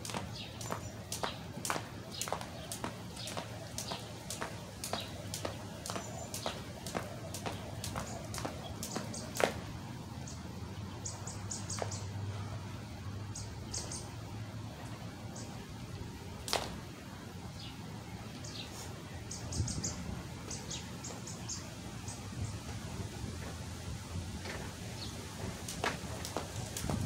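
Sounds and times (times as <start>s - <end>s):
jump rope slapping pavement: 0.0s - 9.8s, 16.4s - 16.8s, 25.4s - 27.0s
small birds chirping: 0.0s - 12.5s, 13.3s - 14.2s, 17.5s - 22.8s.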